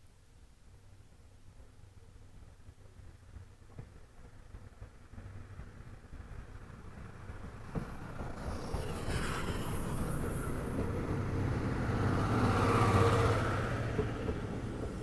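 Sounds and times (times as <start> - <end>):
steam train passing: 2.4 - 15.0
high steam hiss: 8.0 - 15.0.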